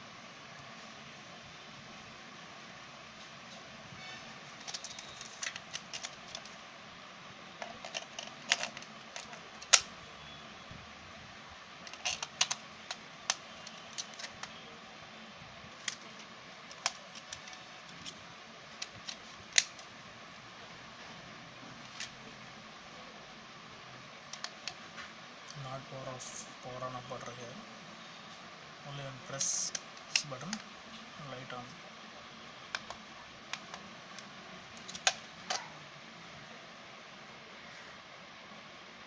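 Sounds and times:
plastic clicks and taps: 24.3 - 24.8, 32.7 - 33.8
plastic snaps: 32.7 - 35.6.

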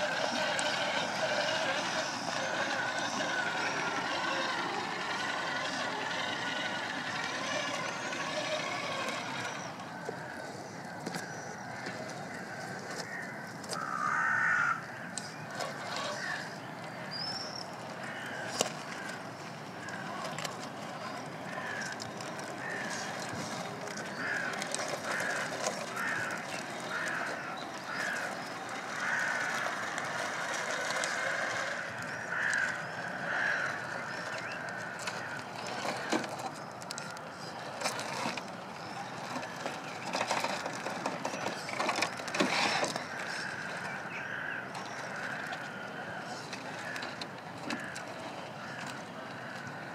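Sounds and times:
small electric motor whirring: 0.0 - 10.1, 15.5 - 16.5, 19.8 - 36.9, 37.5 - 43.9
stones crunching under tyres: 0.0 - 49.9.

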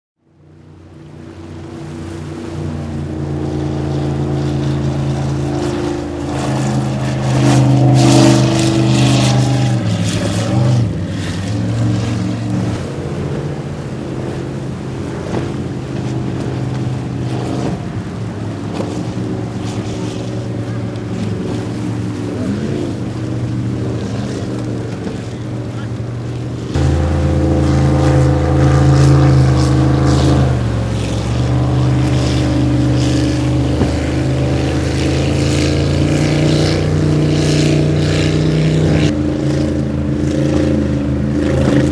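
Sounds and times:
speedboat engines running hard: 0.2 - 41.9
water splashing against hull: 0.2 - 41.9.

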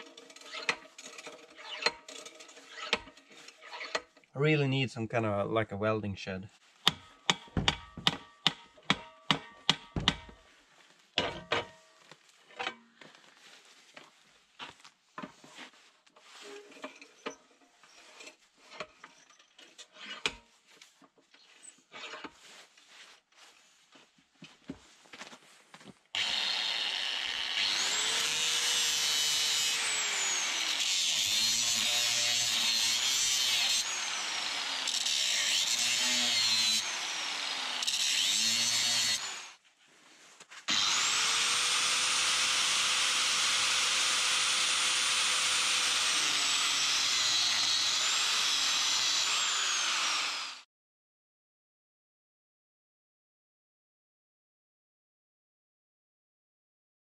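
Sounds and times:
angle grinder cutting steel: 0.0 - 4.1, 26.2 - 39.6, 40.7 - 50.6
knocks and clicks of steel bar: 6.9 - 10.4.

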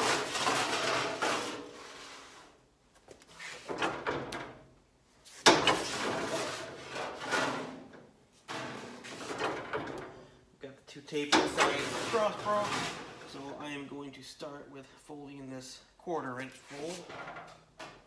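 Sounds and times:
sheet metal rattling and scraping: 0.0 - 2.0, 5.5 - 10.3, 11.3 - 13.6.

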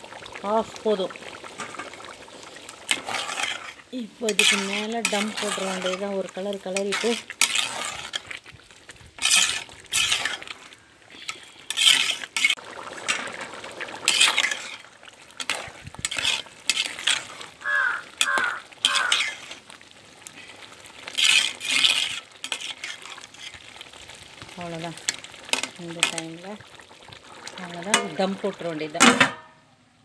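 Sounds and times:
metal ladle scraping pot: 0.5 - 23.9, 27.6 - 29.5.

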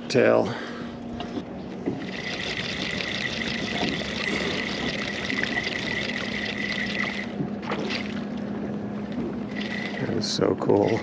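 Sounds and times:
low hum: 0.0 - 11.0
steady high whine: 0.0 - 11.0
water splashing and trickling: 2.0 - 8.5, 9.5 - 11.0.

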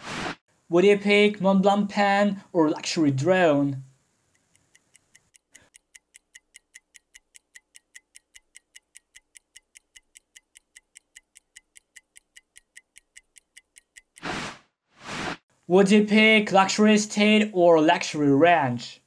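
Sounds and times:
clock-like ticking: 4.3 - 14.3.

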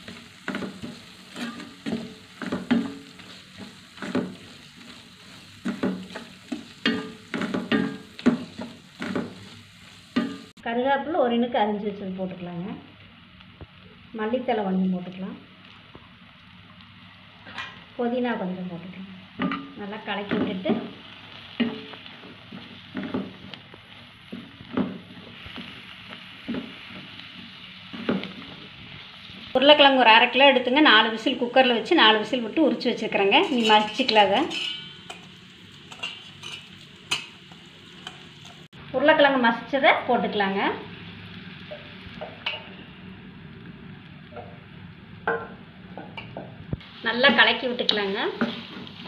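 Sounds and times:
wooden spatula scraping a pan: 0.0 - 10.5, 33.2 - 38.7, 48.3 - 49.0
sizzle of frying in oil: 0.0 - 49.0.

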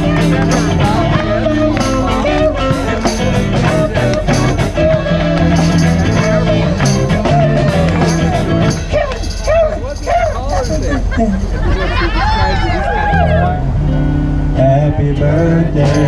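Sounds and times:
live band with amplified guitars: 0.0 - 16.0.

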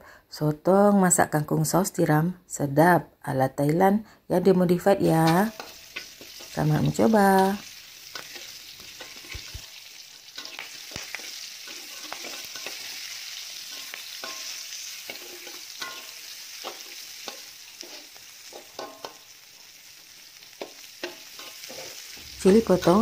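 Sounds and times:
leaves sizzling in a wok: 4.8 - 23.0
spatula scraping a wok: 5.0 - 23.0.

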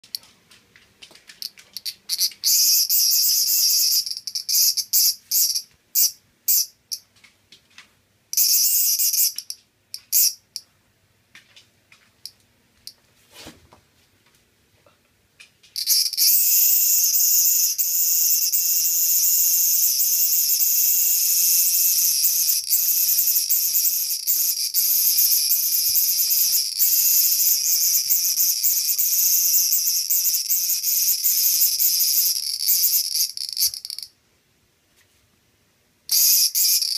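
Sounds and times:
cicada buzzing: 1.8 - 6.7, 8.4 - 10.4, 15.8 - 34.1, 36.1 - 36.9.

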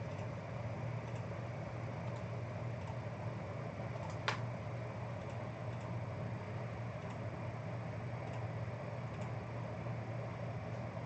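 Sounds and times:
low room hum: 0.0 - 11.0
computer mouse click: 4.0 - 4.4, 8.2 - 8.5, 9.1 - 9.4.

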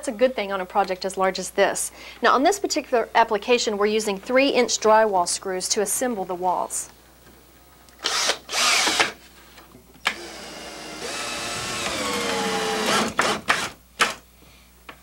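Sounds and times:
cordless drill driving screws: 8.0 - 9.2, 10.0 - 14.2
drill trigger blips: 8.0 - 9.2, 10.0 - 14.2.

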